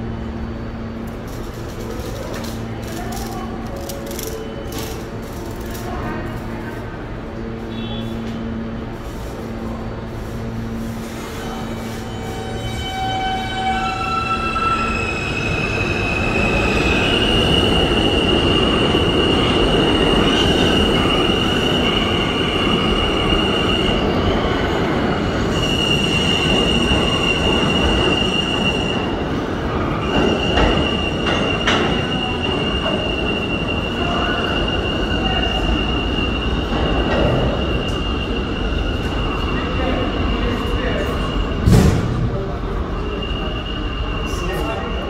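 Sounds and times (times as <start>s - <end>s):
rumble of wheels on rail: 0.0s - 45.0s
train wheels squealing: 11.2s - 41.7s, 42.8s - 45.0s.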